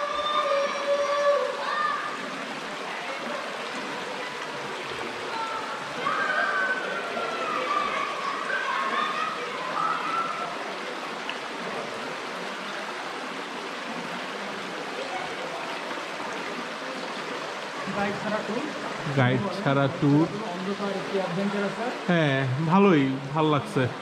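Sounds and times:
creek running over stones: 0:00.0 - 0:24.0.

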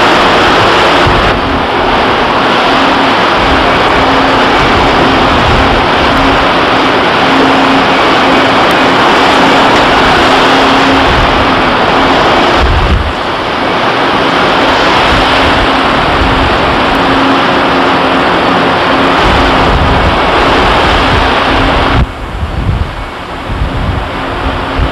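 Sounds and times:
low rumble: 0:00.0 - 0:24.9
sea water churning along hulls: 0:00.0 - 0:24.9
wind buffeting the microphone: 0:00.0 - 0:24.9.

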